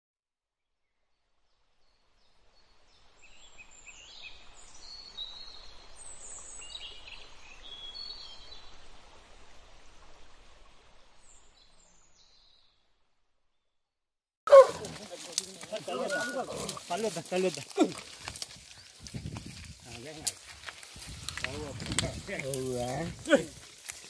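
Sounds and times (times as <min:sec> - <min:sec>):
steady outdoor hiss: 0:01.5 - 0:12.4, 0:14.6 - 0:24.0
birds chirping and calling: 0:14.5 - 0:24.0.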